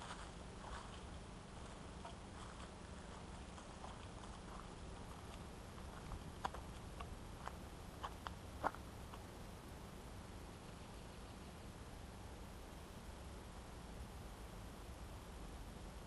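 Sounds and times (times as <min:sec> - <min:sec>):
footsteps on dirt trail: 0:00.0 - 0:08.8
low hum: 0:00.0 - 0:16.0.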